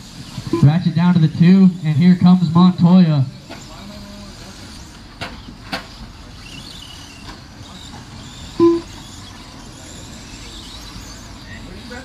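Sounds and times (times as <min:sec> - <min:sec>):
rc truck motors humming: 0:00.0 - 0:12.0
high motor whines: 0:06.3 - 0:12.0.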